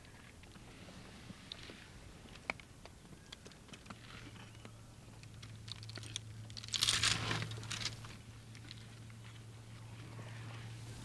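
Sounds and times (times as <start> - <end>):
low steady hum: 0.0 - 11.0
leaves crackling and tearing: 5.4 - 8.2.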